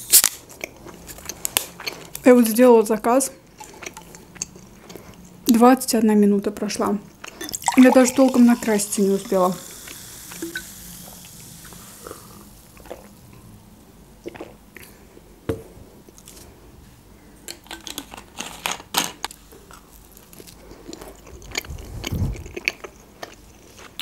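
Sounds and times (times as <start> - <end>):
person drinking juice: 7.2 - 13.3, 14.2 - 15.0
chewing crisp pizza: 19.7 - 24.0.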